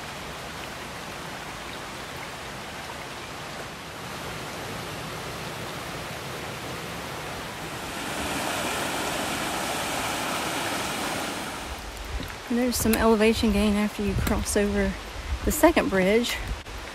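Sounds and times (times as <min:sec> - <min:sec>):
creek water rushing: 0:00.0 - 0:16.9.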